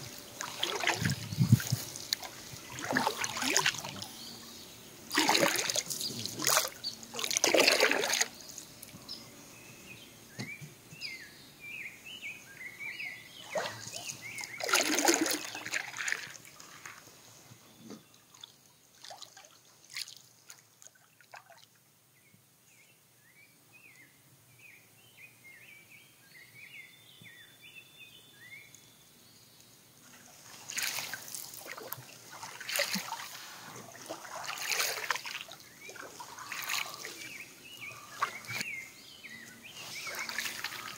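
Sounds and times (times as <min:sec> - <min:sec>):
water splashing off wooden paddle: 0:00.4 - 0:04.0, 0:05.1 - 0:08.3, 0:13.6 - 0:17.0, 0:30.6 - 0:37.3, 0:40.0 - 0:40.9.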